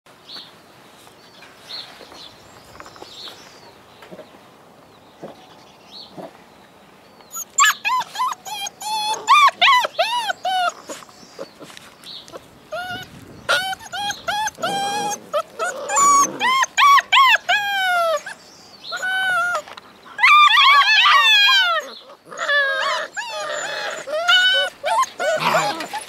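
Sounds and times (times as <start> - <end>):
puppies howling and yipping: 7.3 - 11.0, 12.7 - 26.0
puppies whining: 7.3 - 26.0.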